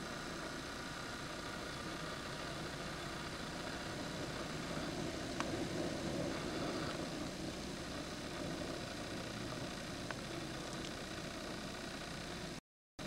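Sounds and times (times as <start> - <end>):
hurricane wind rumble and hiss: 0.0 - 12.6
faint clicks: 10.0 - 11.6.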